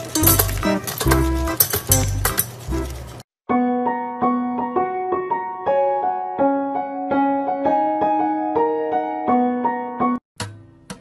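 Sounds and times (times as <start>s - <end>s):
gentle piano melody: 0.0s - 10.2s.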